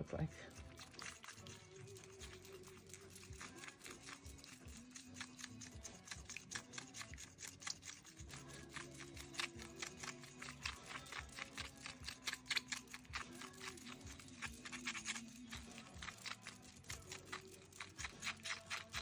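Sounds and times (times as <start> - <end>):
stick scraping glass bowl: 0.3 - 5.1.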